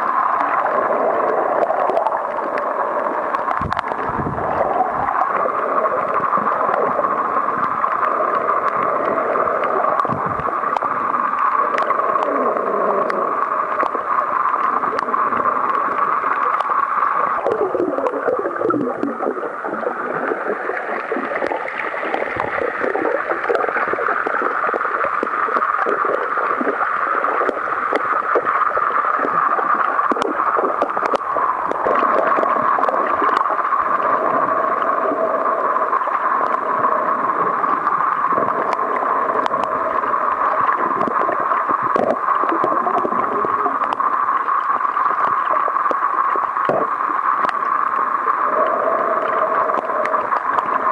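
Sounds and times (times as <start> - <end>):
faint clicks underwater: 0.0 - 50.9
muffled underwater hiss: 0.0 - 50.9.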